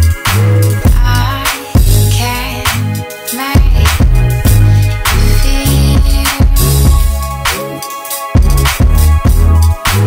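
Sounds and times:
heavy sustained bass notes: 3.6 - 7.5, 8.4 - 9.8.

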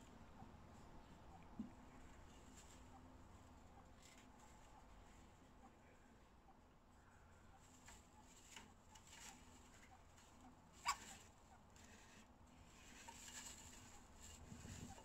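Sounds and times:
animals shuffling in hay: 2.0 - 5.4, 10.8 - 15.0.

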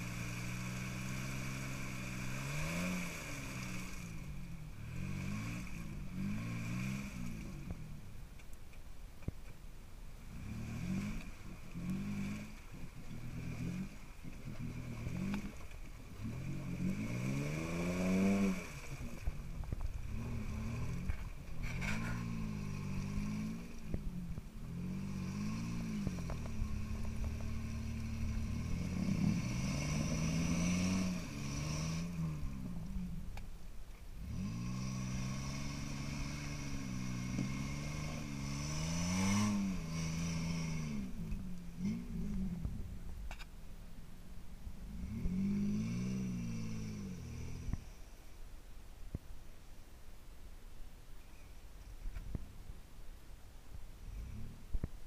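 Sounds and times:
engine revving: 0.0 - 8.0, 10.2 - 33.4, 34.2 - 43.5, 44.8 - 48.0
vehicle churning through mud: 0.0 - 8.3, 10.1 - 48.2.

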